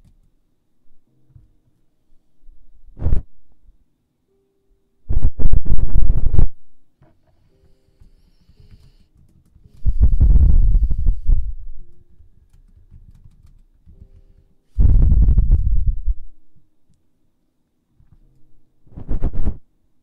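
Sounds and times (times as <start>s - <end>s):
feather brushing microphone: 9.8s - 11.6s, 18.9s - 19.6s.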